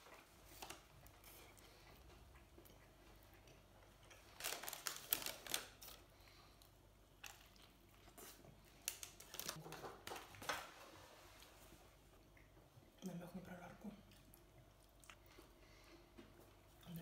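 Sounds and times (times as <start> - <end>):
paper wrapper crinkling: 4.3 - 6.1, 8.2 - 10.7.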